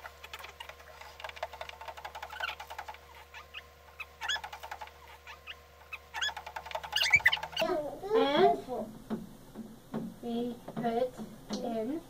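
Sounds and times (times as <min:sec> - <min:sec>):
short high squeaks: 0:02.1 - 0:07.7.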